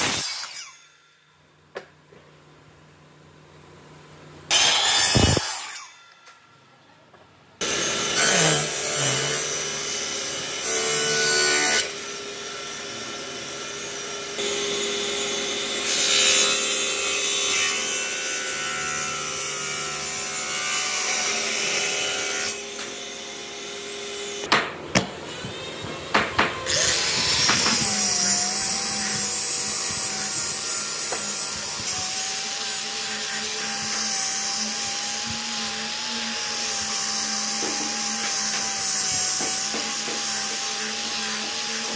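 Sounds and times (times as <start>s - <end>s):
miter saw cutting wood: 0.0s - 1.2s, 4.5s - 6.3s, 7.6s - 24.5s, 25.1s - 41.9s
table saw ripping wood: 0.0s - 1.2s, 4.5s - 6.2s, 7.6s - 9.8s, 26.6s - 41.9s.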